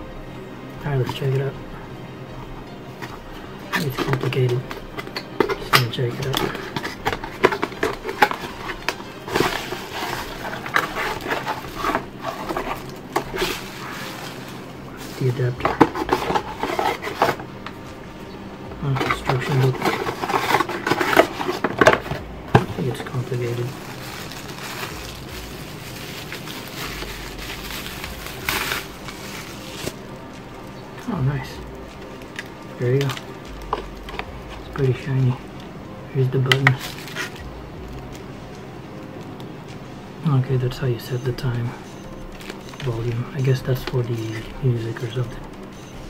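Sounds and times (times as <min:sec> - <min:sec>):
plastic and cardboard rustling: 0:00.8 - 0:01.6, 0:02.9 - 0:46.0
scrapes: 0:03.0 - 0:18.0, 0:18.8 - 0:30.4
plastic bag crinkling: 0:03.7 - 0:17.9, 0:18.8 - 0:39.5, 0:42.3 - 0:45.6.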